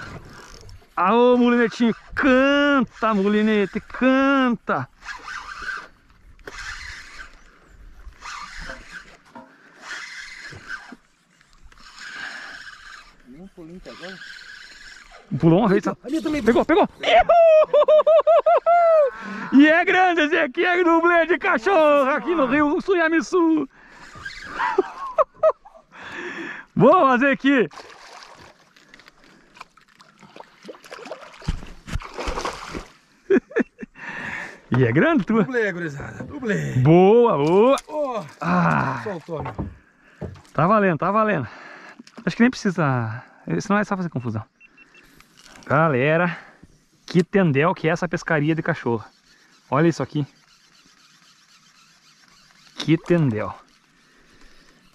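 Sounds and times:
fishing reel drag buzzing: 0.0s - 17.0s, 20.8s - 25.2s, 44.5s - 54.9s
fish splashing at water surface: 29.6s - 33.0s.

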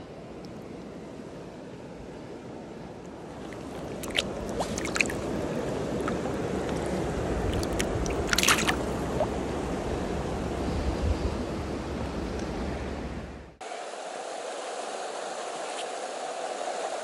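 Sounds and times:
water splashing and sloshing: 3.0s - 10.2s
stream current rushing: 3.0s - 10.7s.

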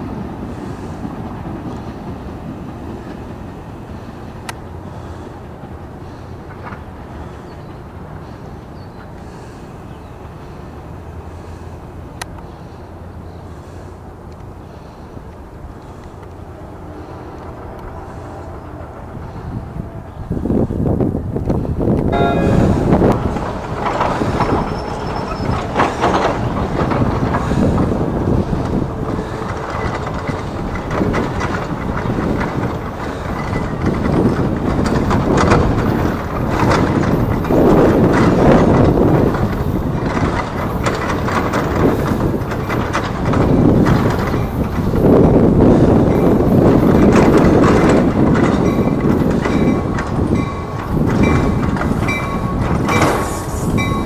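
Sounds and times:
train rumble and rail clatter: 0.0s - 54.0s
high-pitched train squeal: 22.1s - 26.6s, 50.4s - 54.0s.

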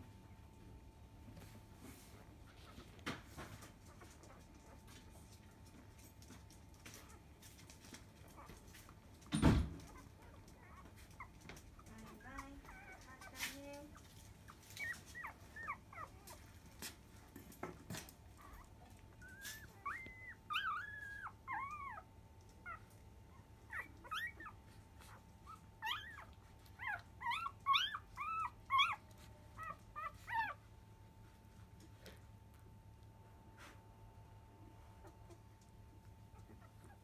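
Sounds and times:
puppies squeaking and whimpering: 9.4s - 16.5s, 18.3s - 30.6s.

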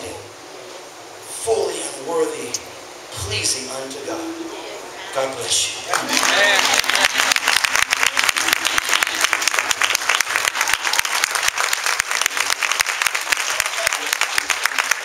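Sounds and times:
crowd applauding: 5.9s - 15.0s.

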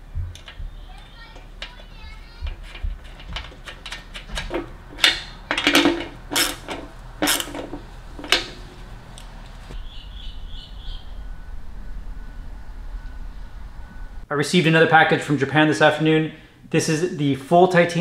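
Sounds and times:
metal nut and wrench clinking: 2.5s - 8.6s
metal scrapes: 2.6s - 9.0s.

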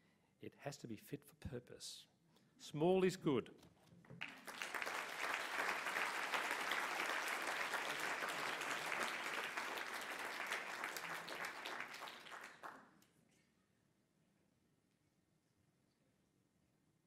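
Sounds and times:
audience applauding: 4.2s - 12.9s.

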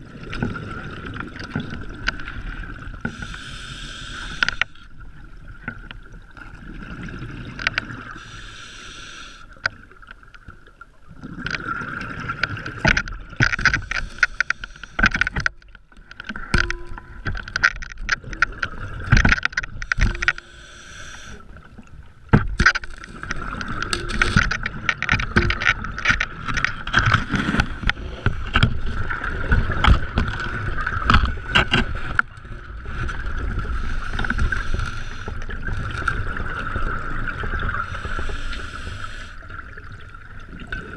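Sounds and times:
tank knocking and scraping on rock: 22.3s - 28.8s.

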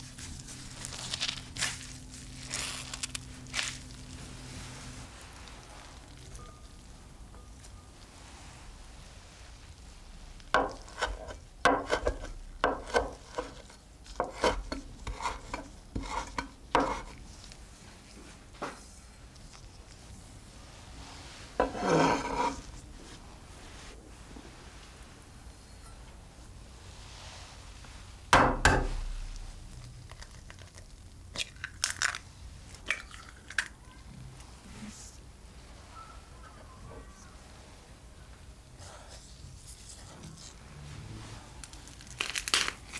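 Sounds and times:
eggshells crackling: 0.0s - 4.2s, 29.3s - 33.8s, 41.6s - 42.9s
knife chopping on wooden board: 10.6s - 13.6s.

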